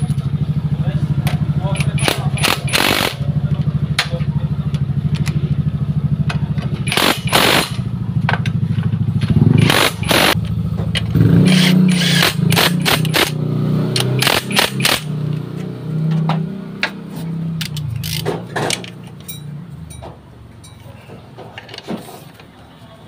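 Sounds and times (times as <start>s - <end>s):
impact wrench hammering bursts: 1.6s - 3.2s, 6.8s - 7.9s, 9.4s - 10.4s, 11.1s - 15.2s.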